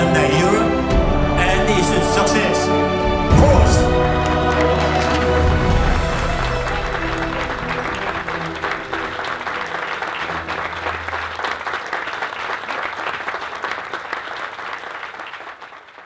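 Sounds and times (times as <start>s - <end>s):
music with low bass notes: 2.8s - 9.0s
crowd applauding: 3.0s - 16.0s.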